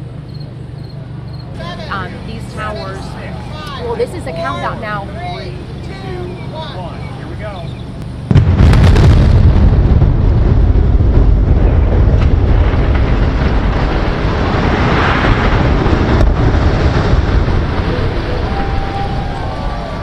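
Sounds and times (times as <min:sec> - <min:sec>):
deep rumble of towers collapsing: 0:08.3 - 0:20.0
demolition blast with sharp cracks: 0:08.3 - 0:20.0.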